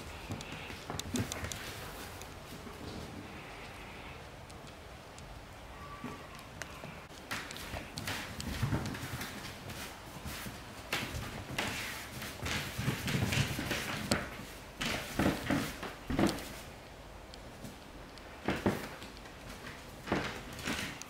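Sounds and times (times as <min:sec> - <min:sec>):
dog claws clicking on wooden floor: 0:07.1 - 0:16.6.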